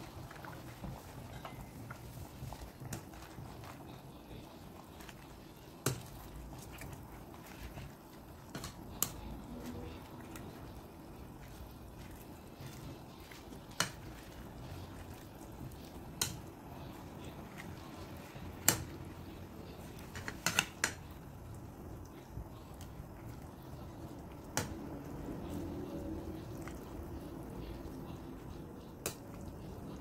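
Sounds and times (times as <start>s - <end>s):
low steady background: 0.0s - 30.0s.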